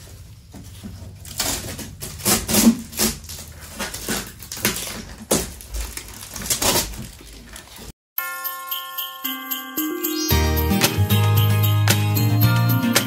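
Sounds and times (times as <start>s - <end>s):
packaging crackling and ripping: 1.2s - 7.9s.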